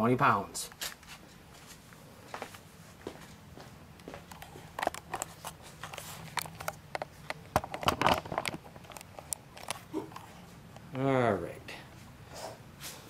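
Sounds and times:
camera handling noise: 4.3s - 10.3s.

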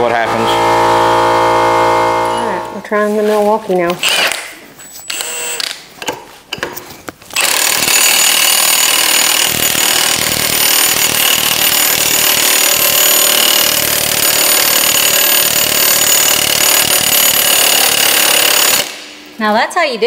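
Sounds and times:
impact wrench hammering: 7.4s - 19.3s.

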